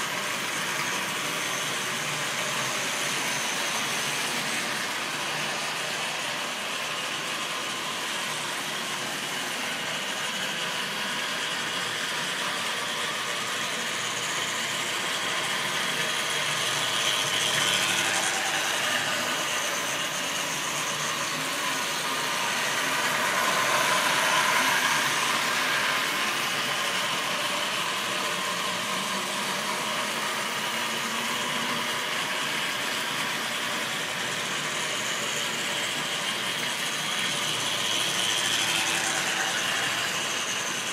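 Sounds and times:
model train motors whirring: 0:00.0 - 0:40.9.

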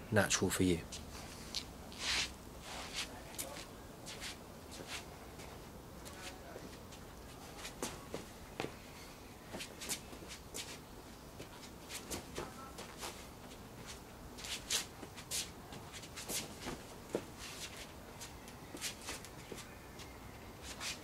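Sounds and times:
shoes scuffing on stone paving: 0:00.9 - 0:05.5, 0:11.4 - 0:21.0.

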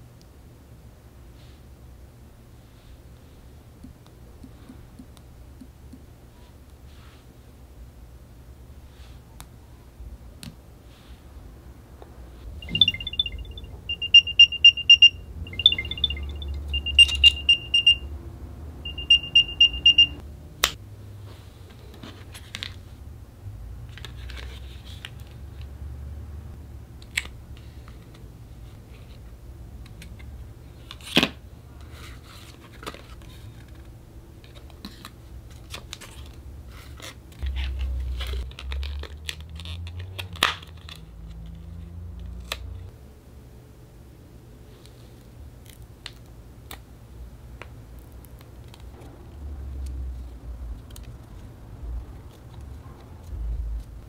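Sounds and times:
high-pitched electronic beep melody: 0:12.6 - 0:18.1, 0:18.8 - 0:20.2.

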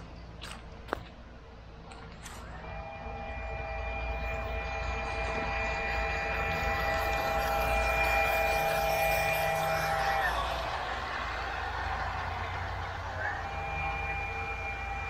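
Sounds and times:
train horn chord: 0:02.7 - 0:11.4.

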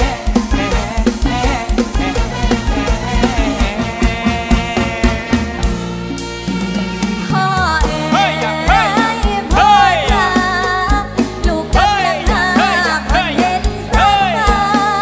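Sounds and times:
band with steady drum beat: 0:00.0 - 0:15.0
woman singing: 0:07.2 - 0:15.0.

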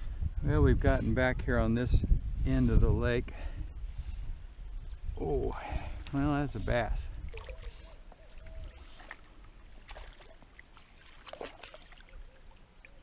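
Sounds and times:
water lapping against a float tube: 0:05.7 - 0:13.0
fish splashing at surface: 0:07.3 - 0:12.2.

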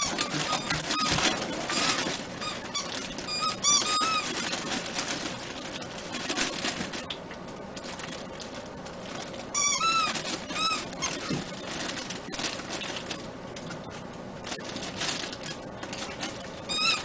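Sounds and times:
puppies whining: 0:00.0 - 0:05.8, 0:09.5 - 0:12.5, 0:15.4 - 0:17.0
paws tapping and scratching: 0:00.0 - 0:17.0.

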